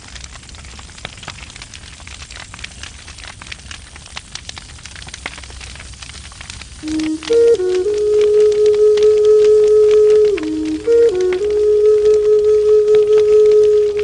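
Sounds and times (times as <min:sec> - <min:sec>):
fire crackling and popping: 0:00.0 - 0:14.0.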